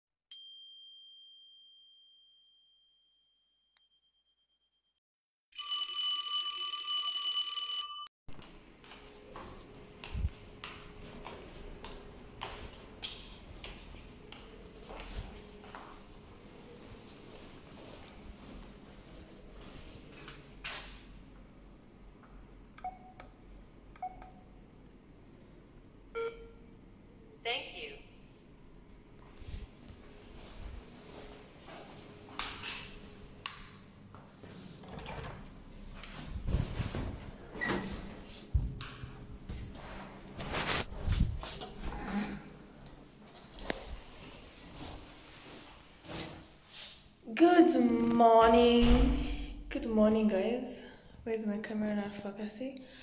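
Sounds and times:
bell ding: 0.3 - 4.8
alarm clock bell ringing: 5.6 - 8.1.

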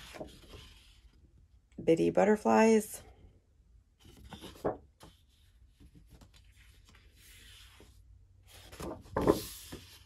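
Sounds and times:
paper sheet rustling: 0.0 - 1.0, 4.0 - 10.0
paper sliding and rubbing: 4.1 - 10.0.

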